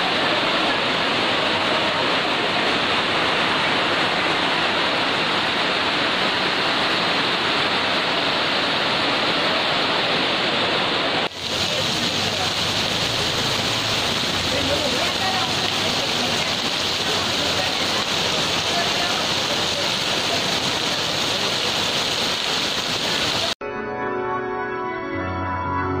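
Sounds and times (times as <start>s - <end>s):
heavy rain: 0.0s - 23.6s.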